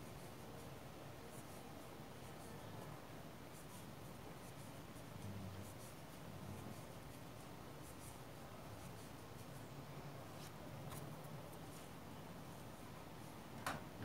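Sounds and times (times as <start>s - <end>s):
crochet hook scratching yarn: 3.5s - 9.5s.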